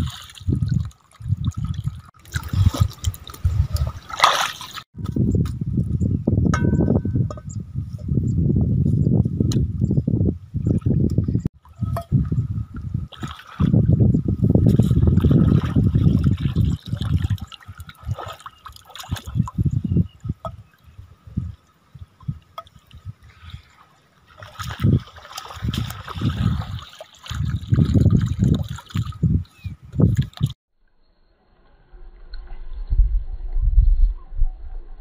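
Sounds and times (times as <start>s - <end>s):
muddy water sloshing: 0.0s - 5.0s, 10.6s - 21.0s, 21.6s - 30.6s.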